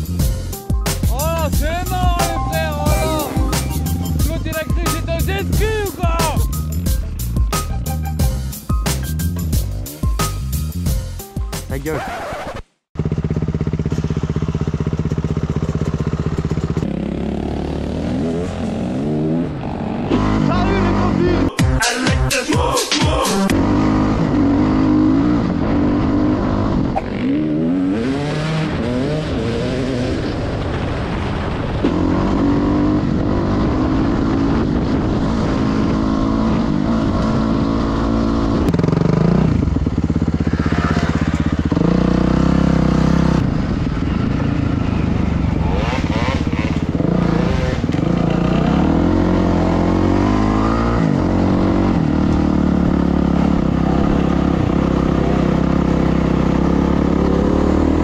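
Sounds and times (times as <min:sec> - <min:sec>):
dirt bike engine revving: 0:11.9 - 0:21.6, 0:23.4 - 0:30.8, 0:31.7 - 0:58.0.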